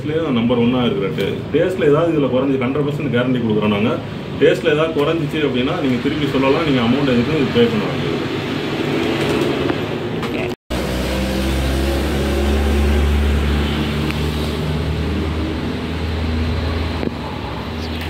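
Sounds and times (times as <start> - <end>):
vehicle engine droning: 5.5 - 18.0.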